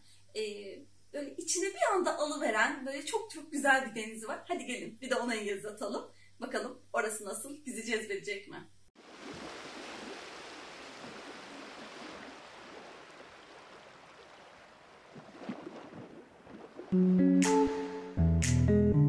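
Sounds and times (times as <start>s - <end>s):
sea waves washing on shore: 9.0s - 17.0s
guitar music: 17.0s - 19.0s.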